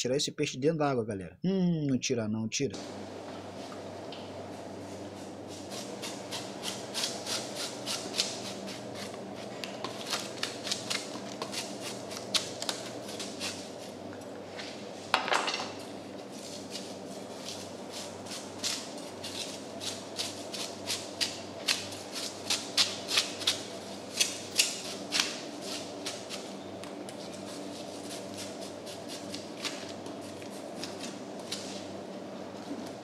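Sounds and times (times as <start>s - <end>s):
steady low hum: 0.0s - 33.0s
knife scraping fish scales: 5.5s - 12.2s, 13.1s - 13.9s, 16.4s - 26.5s.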